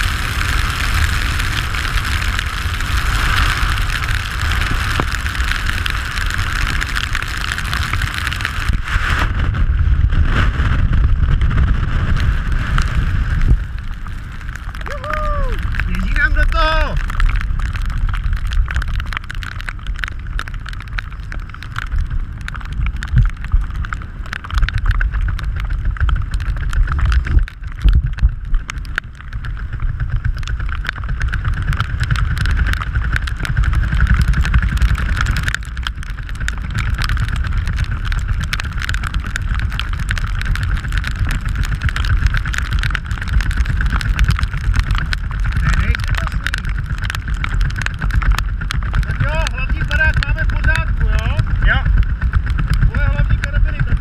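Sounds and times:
crackling: 0.0s - 54.0s
strong wind buffeting microphone: 0.0s - 54.0s.

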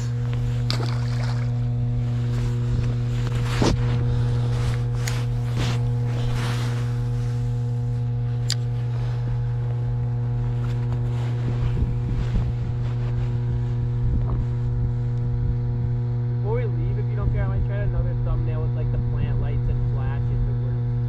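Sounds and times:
water splashes: 0.0s - 1.7s
low electrical hum: 0.0s - 21.0s.

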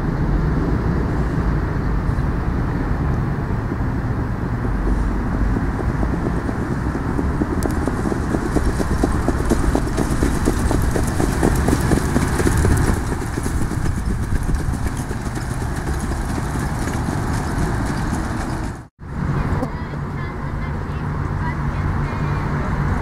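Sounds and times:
steady low rumble: 0.0s - 22.4s
trotting horse hoofbeats: 3.2s - 18.9s.

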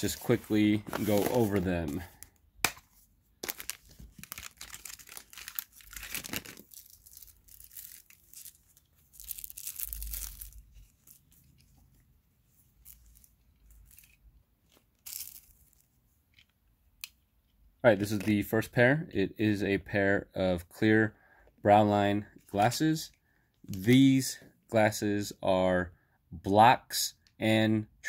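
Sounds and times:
packaging rustling and tearing: 0.0s - 2.3s, 3.4s - 11.8s.

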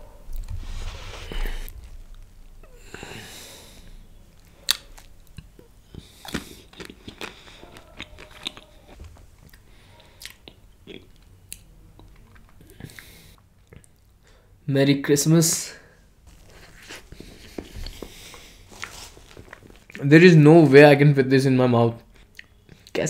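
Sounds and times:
chewing and mouth sounds: 4.4s - 14.2s, 22.0s - 23.0s.

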